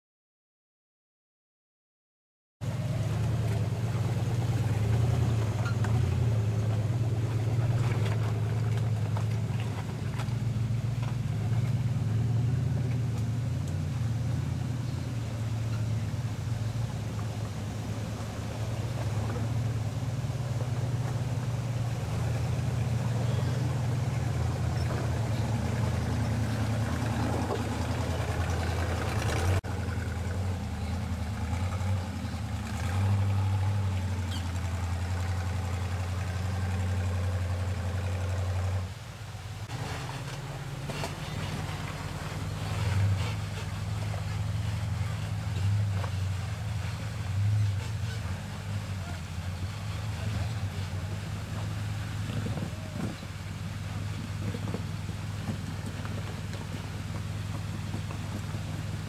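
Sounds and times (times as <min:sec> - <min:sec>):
buggy engine at low revs: 0:02.6 - 0:59.0.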